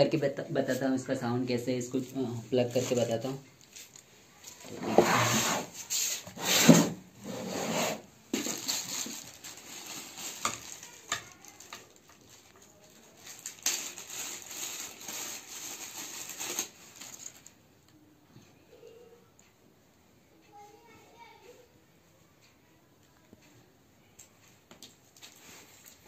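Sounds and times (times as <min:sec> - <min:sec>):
packaging rubbing and scraping: 0:04.6 - 0:17.5.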